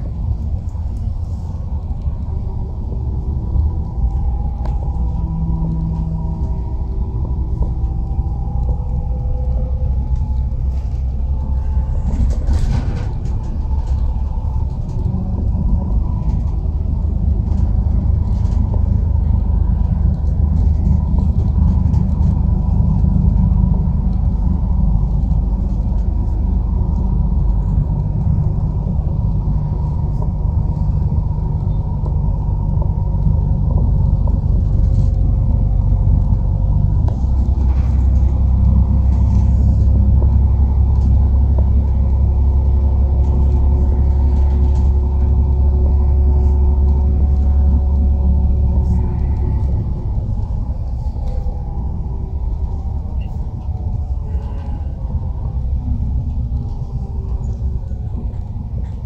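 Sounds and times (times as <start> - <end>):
faint whine: 0.0 - 59.0
vehicle rumble: 0.0 - 59.0.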